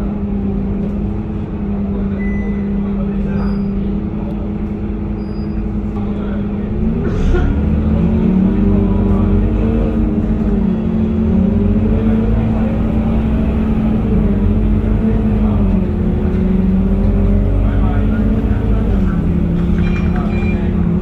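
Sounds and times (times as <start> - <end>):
bus diesel engine running: 0.0 - 21.0.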